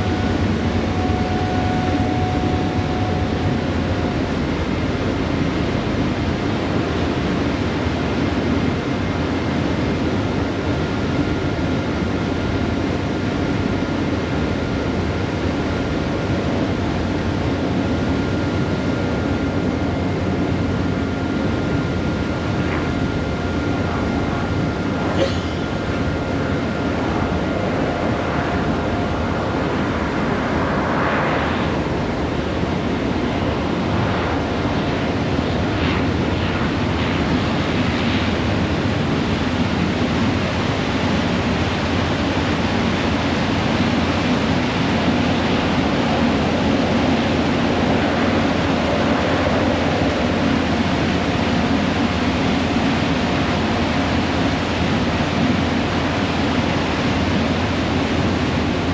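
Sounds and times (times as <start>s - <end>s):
ferry engines droning: 0.0s - 6.8s, 16.2s - 36.4s.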